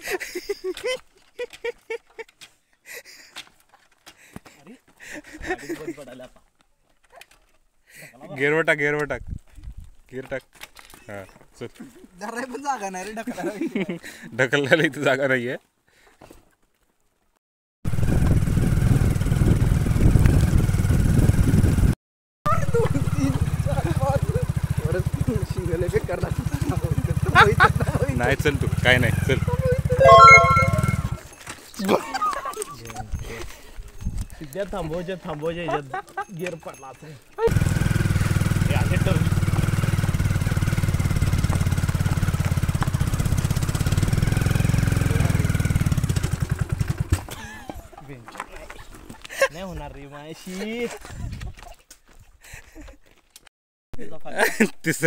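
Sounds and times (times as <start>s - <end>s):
motorcycle engine running: 17.9s - 21.8s, 22.5s - 29.9s, 37.5s - 47.3s.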